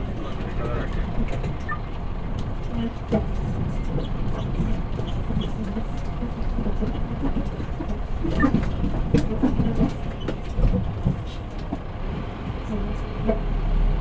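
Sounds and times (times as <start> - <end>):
truck engine rumble: 0.0 - 14.0
knocks and rattles: 2.4 - 11.9.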